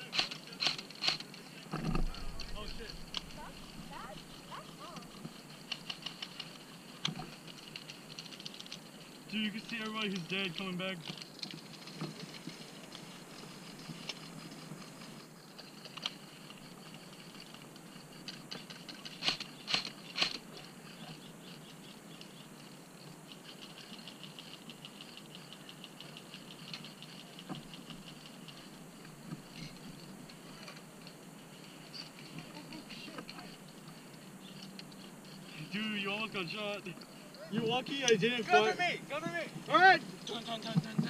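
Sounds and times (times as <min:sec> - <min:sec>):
sharp cracks: 0:00.0 - 0:08.9, 0:18.6 - 0:20.5.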